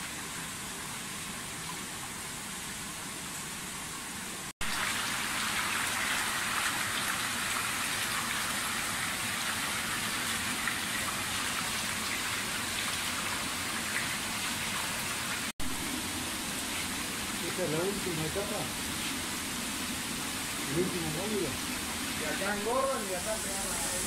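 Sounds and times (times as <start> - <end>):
water running and splashing: 0.0 - 24.0.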